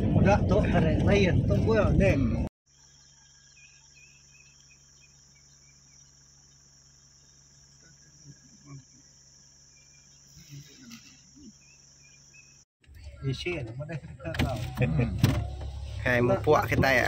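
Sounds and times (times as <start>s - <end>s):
insects droning: 2.7s - 12.7s.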